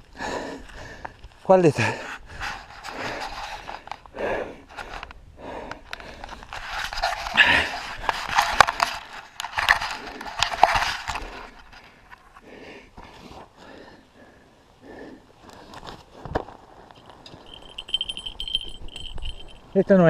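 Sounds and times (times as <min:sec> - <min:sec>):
man breathing hard: 0:00.0 - 0:06.6, 0:11.1 - 0:16.3
grass and soil rustling: 0:05.9 - 0:12.4.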